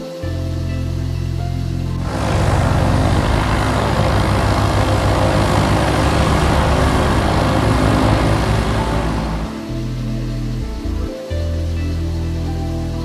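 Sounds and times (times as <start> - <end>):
propeller airplane engine drone: 1.9 - 11.2.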